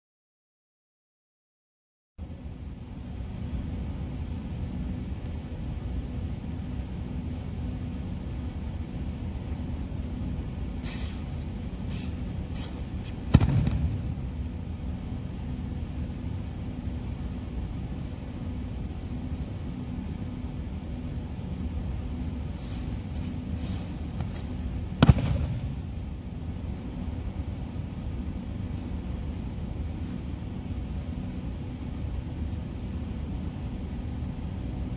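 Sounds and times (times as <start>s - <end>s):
steady low hum: 2.2s - 34.9s
body slapping onto mat: 25.0s - 25.7s.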